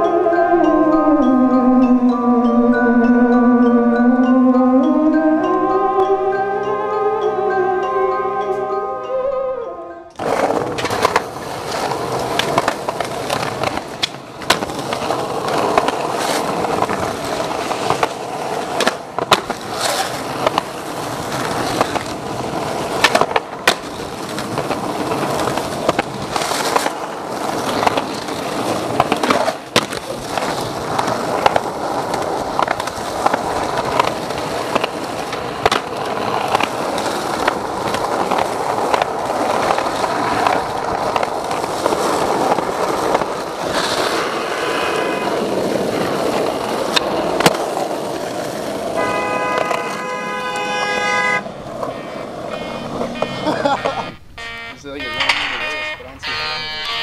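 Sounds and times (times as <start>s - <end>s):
skateboard tail popping: 10.1s - 50.7s
skateboard wheels rolling on concrete: 10.1s - 57.0s
skateboard landing slap: 10.2s - 17.0s, 17.8s - 20.7s, 22.9s - 44.2s, 49.6s - 50.0s.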